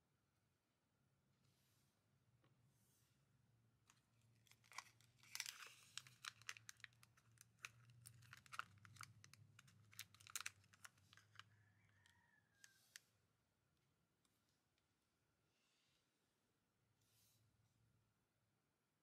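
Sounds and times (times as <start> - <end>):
plastic bag crinkling: 4.3 - 11.4.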